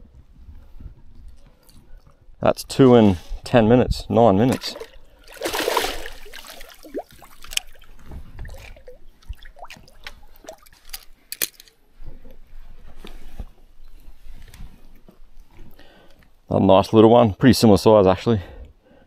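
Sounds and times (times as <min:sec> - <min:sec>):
fish splashing at water surface: 0:04.5 - 0:07.9.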